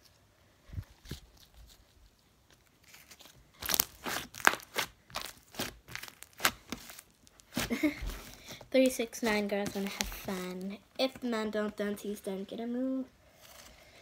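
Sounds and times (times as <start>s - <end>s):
crunching and crackling: 0.8s - 11.8s.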